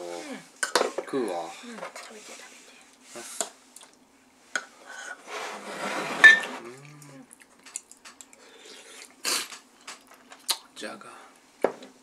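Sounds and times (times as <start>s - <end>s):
scraping rustle: 5.0s - 6.7s.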